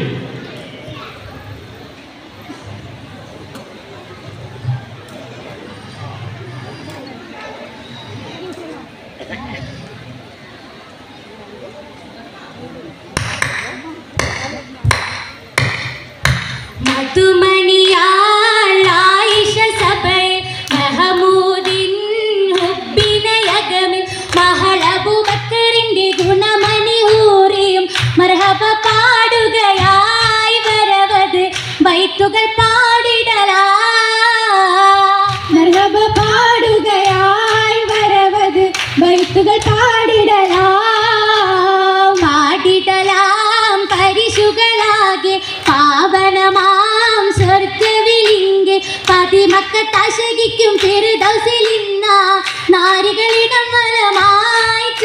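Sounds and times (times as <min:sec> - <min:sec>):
sharp hand claps: 0:13.2 - 0:17.2, 0:20.6 - 0:21.9, 0:22.5 - 0:27.3, 0:27.9 - 0:29.1, 0:29.7 - 0:31.8, 0:35.3 - 0:45.0, 0:47.3 - 0:55.0
women singing in unison: 0:16.8 - 0:55.0.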